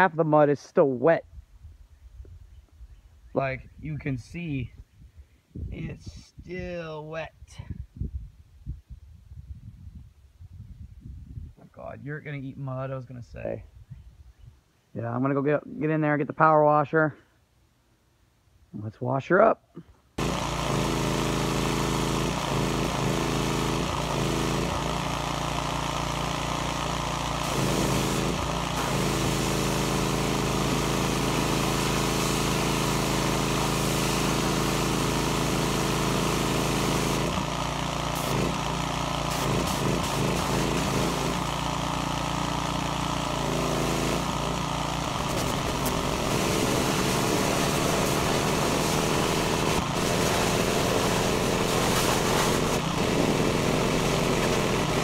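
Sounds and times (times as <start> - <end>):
high-pressure water spray on plastic: 20.2 - 55.0
small engine running: 20.2 - 55.0.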